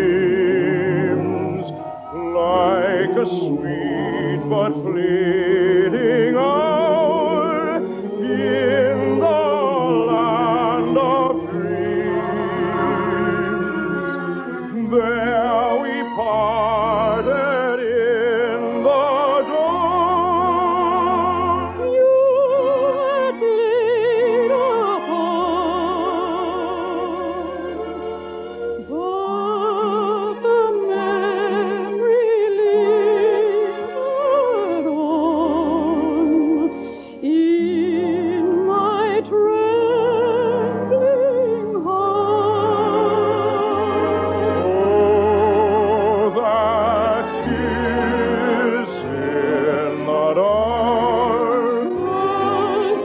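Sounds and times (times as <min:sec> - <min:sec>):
orchestral accompaniment: 0:00.0 - 0:53.0
person singing with vibrato: 0:00.0 - 0:53.0.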